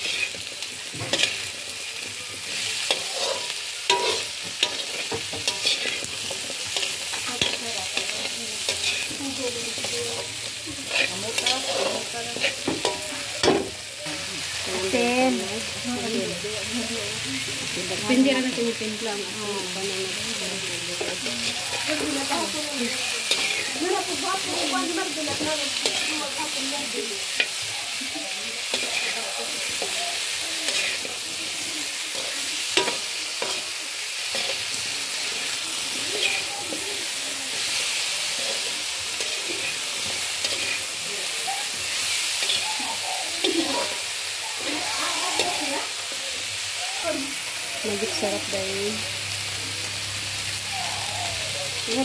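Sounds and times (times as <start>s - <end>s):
spatula scraping a wok: 0.0s - 13.9s, 20.3s - 46.3s
food sizzling in oil: 0.0s - 52.0s.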